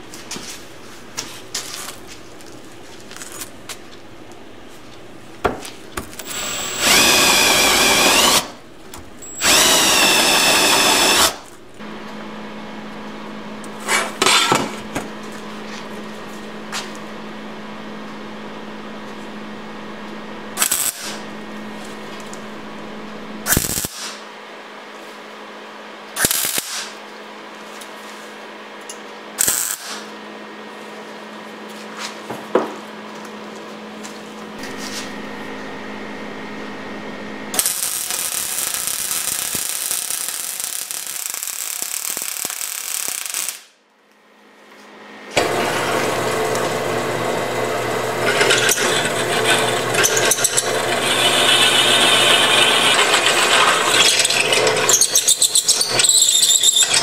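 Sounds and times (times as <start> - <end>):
welder crackling and hissing: 6.1 - 8.6, 9.2 - 11.6, 20.5 - 24.2, 26.2 - 27.0, 29.4 - 30.1, 37.4 - 43.8
drill press cutting steel: 6.2 - 8.6, 9.2 - 11.5, 45.3 - 57.0
low hum: 11.1 - 13.9, 14.7 - 23.5, 34.6 - 37.6.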